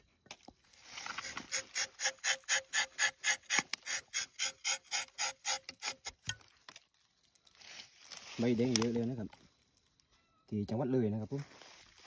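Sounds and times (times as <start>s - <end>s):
knife rasping on tree bark: 1.0s - 6.2s.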